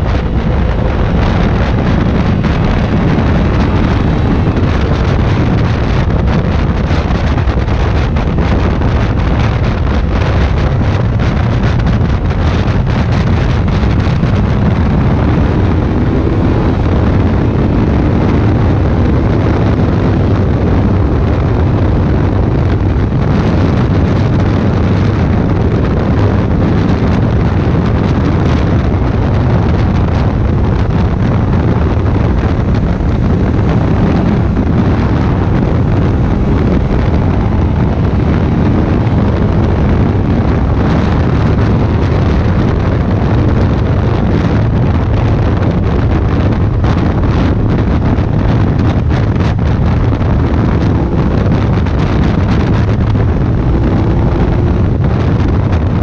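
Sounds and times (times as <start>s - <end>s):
motorcycle engine drone: 0.0s - 56.0s
wind noise on microphone: 0.0s - 56.0s.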